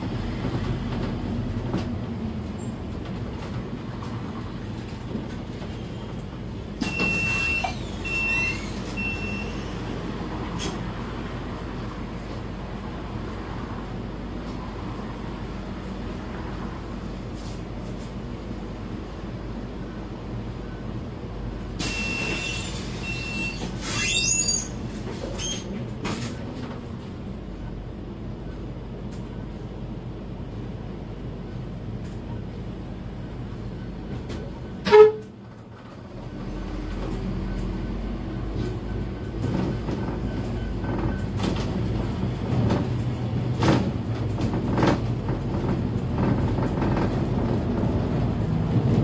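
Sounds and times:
diesel bus engine running: 0.0s - 49.0s
brief high squeal: 6.8s - 9.8s, 21.8s - 24.8s, 25.4s - 25.7s.

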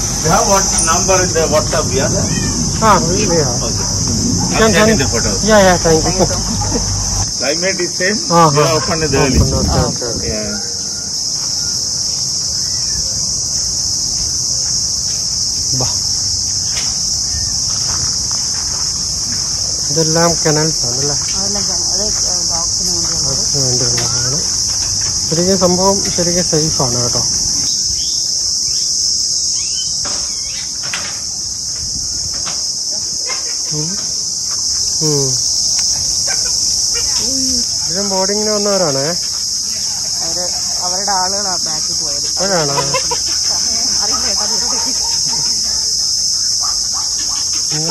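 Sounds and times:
insects chirring: 0.0s - 47.9s
calls falling in pitch: 42.4s - 44.6s.

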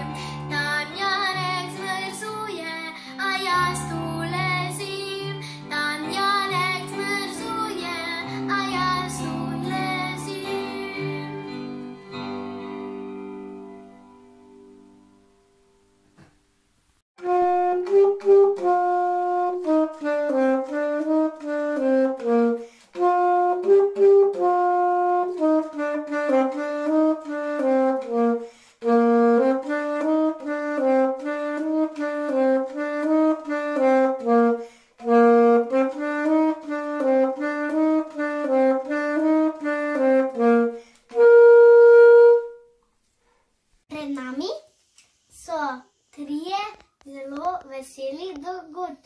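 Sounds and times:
alto saxophone melody: 17.2s - 42.8s.

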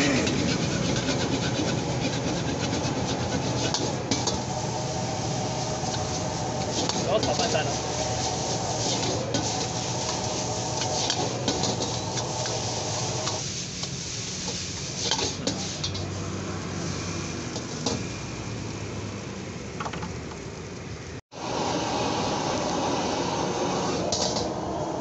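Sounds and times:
metal ladle scraping a wok: 0.0s - 16.2s
frying sizzle: 0.0s - 25.0s.

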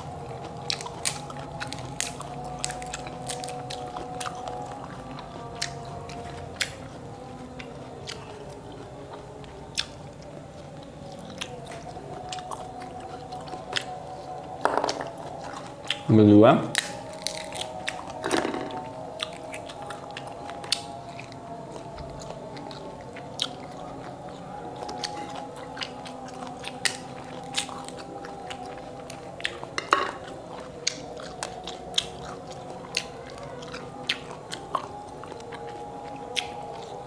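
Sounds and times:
person chewing fruit: 0.0s - 37.0s
fruit rinds cracking: 14.5s - 21.4s.

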